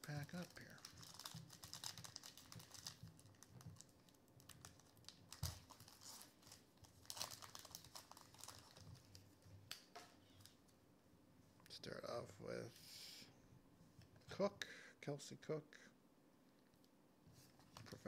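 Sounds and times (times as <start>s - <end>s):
foil wrapper tearing and crinkling: 0.0s - 9.2s.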